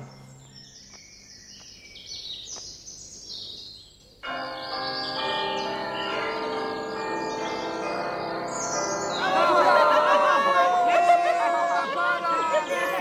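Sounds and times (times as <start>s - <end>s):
birds chirping: 0.0s - 13.0s
church bells ringing: 4.2s - 13.0s.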